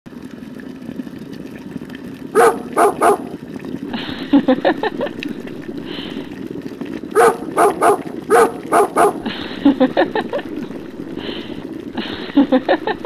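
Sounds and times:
rapid run of short sounds: 2.3s - 6.3s, 7.0s - 13.0s
steady low hum: 2.3s - 13.0s
dog barking: 2.4s - 3.3s, 7.2s - 9.3s.

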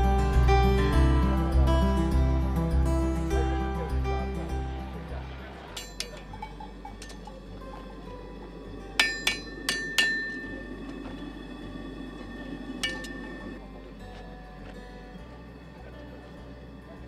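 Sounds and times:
hammer ringing on anvil: 5.8s - 7.2s, 9.0s - 10.8s, 12.8s - 13.5s.

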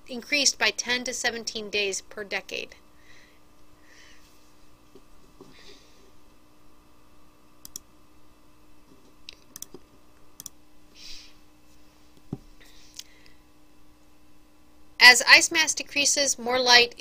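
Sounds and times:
faint electrical hum: 0.0s - 17.0s
computer mouse clicking: 7.6s - 7.8s, 9.3s - 9.8s, 10.4s - 10.6s.

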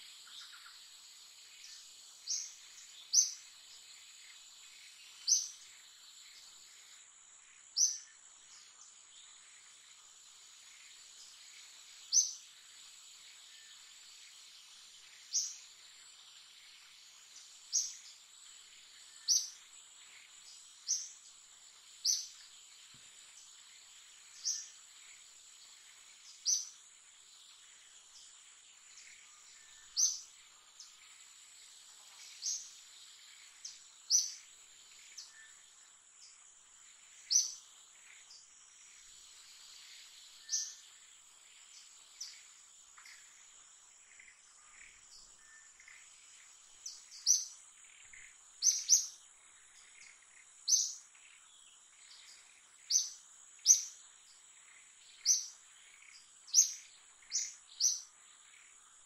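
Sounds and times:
high insect drone: 0.0s - 59.0s
sharp bird chirps: 46.8s - 49.2s, 49.8s - 51.1s, 55.1s - 58.1s.

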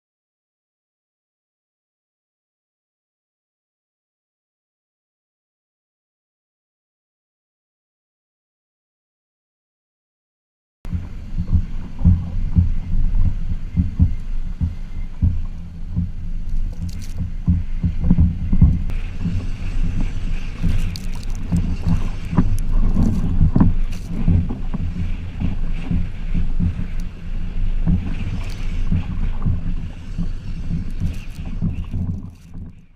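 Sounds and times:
wind buffeting: 10.9s - 32.9s.

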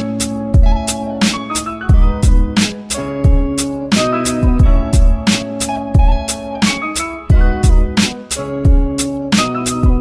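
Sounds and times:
plucked melody: 0.0s - 10.0s
deep kick drums: 0.6s - 0.8s, 1.9s - 3.6s, 4.4s - 5.4s, 6.0s - 6.3s, 7.3s - 8.0s, 8.6s - 9.0s
sharp snare hits: 8.0s - 8.2s.

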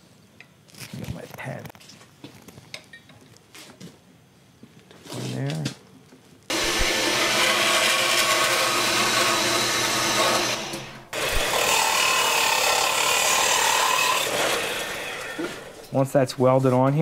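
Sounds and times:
band saw cutting metal tube: 6.5s - 15.9s
sander grinding metal: 6.5s - 15.9s.

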